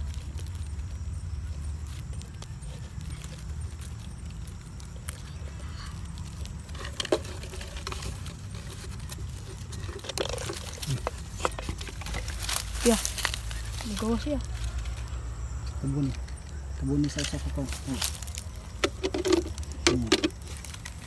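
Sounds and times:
twig scratching in soil: 0:00.0 - 0:21.0
steady low rumble: 0:10.7 - 0:21.0.

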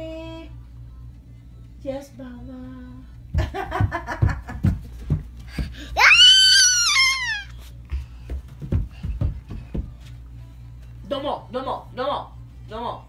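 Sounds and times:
child squealing: 0:06.0 - 0:07.6.

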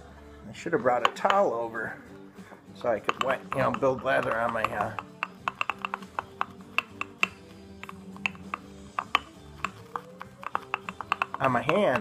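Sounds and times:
quiet rock music: 0:00.0 - 0:12.0
shaving brush clicking in mug: 0:03.0 - 0:12.0.

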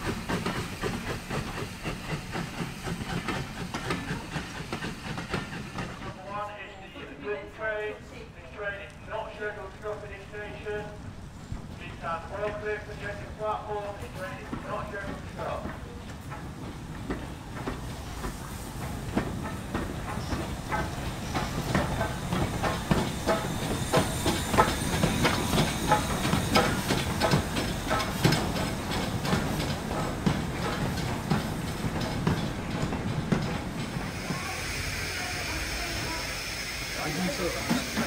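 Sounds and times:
steam hissing: 0:00.0 - 0:06.2, 0:17.6 - 0:38.0
train wheels clicking and clanking: 0:00.0 - 0:06.2, 0:11.4 - 0:38.0.

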